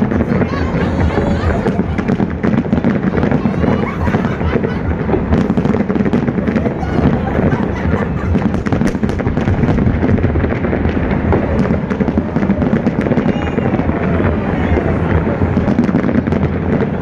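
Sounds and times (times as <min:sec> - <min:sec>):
fireworks bangs and crackles: 0:00.0 - 0:17.0
low rumble: 0:00.0 - 0:17.0.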